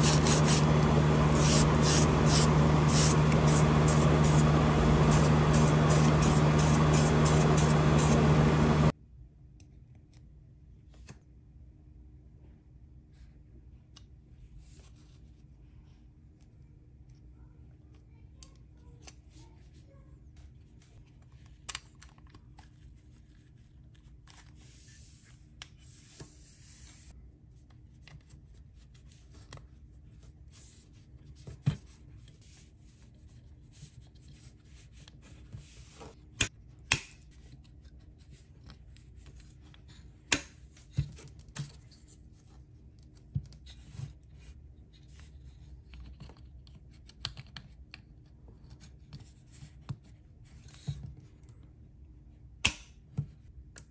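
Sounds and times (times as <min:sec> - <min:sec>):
low steady hum: 0:00.0 - 0:09.2.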